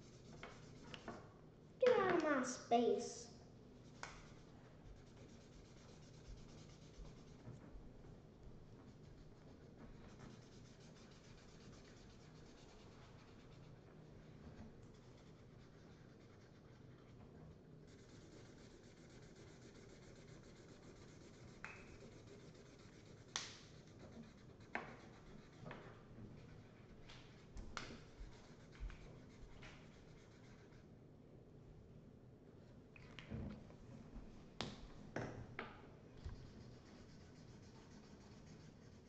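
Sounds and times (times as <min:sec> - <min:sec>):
markers scratching on paper: 0:00.0 - 0:01.1, 0:03.8 - 0:07.5, 0:08.8 - 0:13.8, 0:14.8 - 0:17.2, 0:17.8 - 0:30.9, 0:36.2 - 0:39.0.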